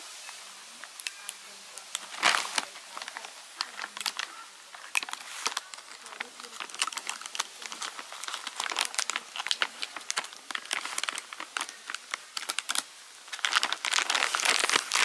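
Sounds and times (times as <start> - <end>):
plastic bag crinkling: 1.0 - 15.0.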